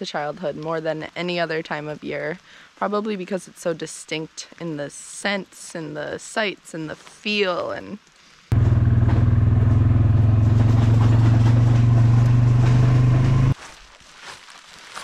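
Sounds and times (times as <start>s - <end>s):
atv engine running: 8.5s - 13.6s.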